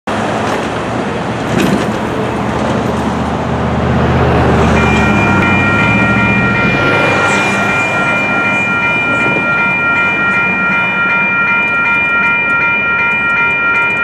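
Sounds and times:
road traffic engine hum: 0.1 - 14.0
electronic crossing bells ringing: 4.0 - 14.0.

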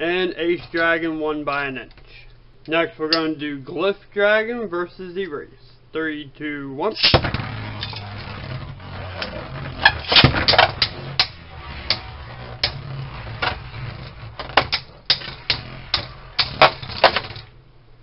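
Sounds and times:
spinning tops whirring: 7.0 - 17.6.

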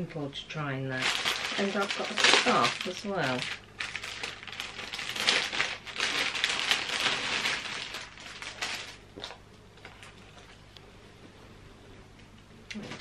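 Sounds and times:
packaging crinkling and rustling: 1.0 - 10.6.

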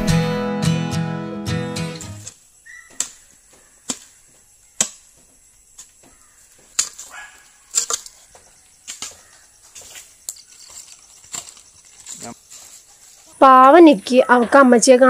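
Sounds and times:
soil scraping: 1.9 - 13.4
hoe chopping into earth: 2.2 - 4.2, 4.8 - 8.1.

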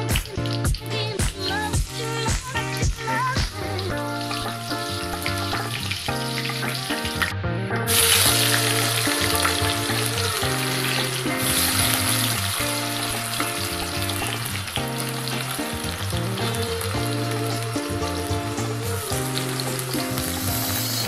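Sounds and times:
background music: 0.0 - 21.0
potatoes sizzling in hot oil: 4.1 - 7.3, 7.9 - 21.0.

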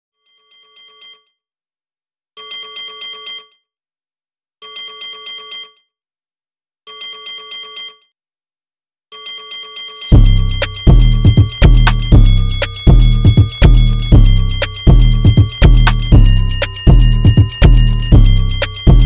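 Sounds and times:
telephone ringing with trill: 12.3 - 19.0.

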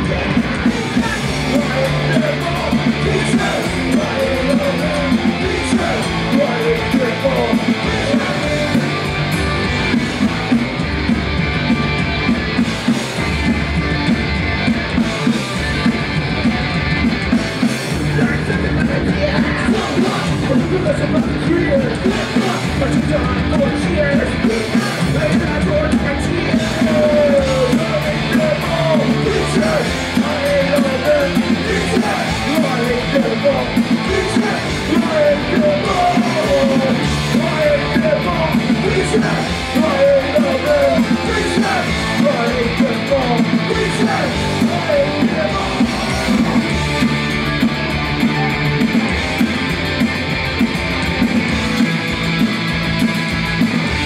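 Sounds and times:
person singing: 0.0 - 10.0, 18.0 - 47.6
punk rock band playing: 0.0 - 54.0.

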